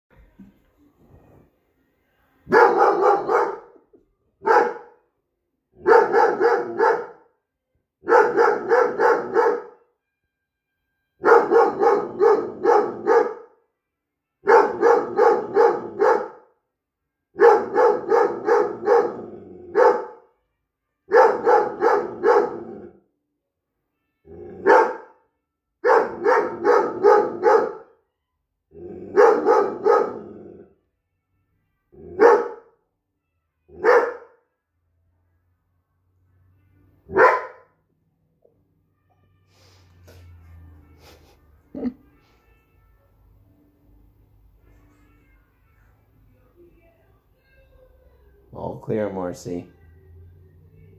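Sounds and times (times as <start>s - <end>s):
puppy barking: 2.5s - 3.8s, 4.4s - 5.0s, 5.8s - 7.3s, 8.0s - 9.8s, 11.2s - 13.6s, 14.4s - 16.5s, 17.4s - 20.3s, 21.1s - 22.8s, 24.6s - 25.2s, 25.8s - 28.0s, 29.1s - 30.4s, 32.0s - 32.8s, 33.8s - 34.4s, 37.1s - 37.8s.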